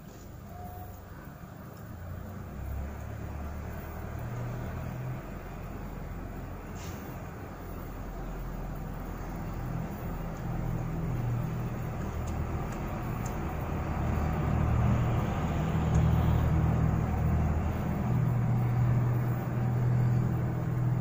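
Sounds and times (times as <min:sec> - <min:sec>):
low engine-like rumble: 0:00.0 - 0:21.0
faint light clicks: 0:12.0 - 0:13.4.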